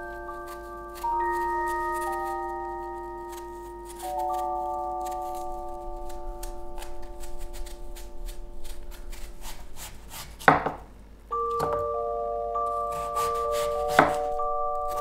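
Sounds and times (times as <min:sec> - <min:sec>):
soft bell-like music: 0:00.0 - 0:09.1, 0:11.3 - 0:15.0
knife chopping apple on board: 0:06.8 - 0:10.8, 0:12.9 - 0:14.3.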